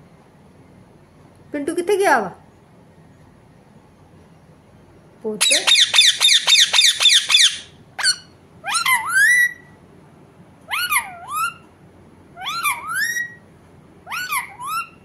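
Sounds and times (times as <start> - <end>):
parakeet squawks and calls: 5.4 - 9.8, 10.7 - 11.7, 12.3 - 13.4, 14.0 - 15.0.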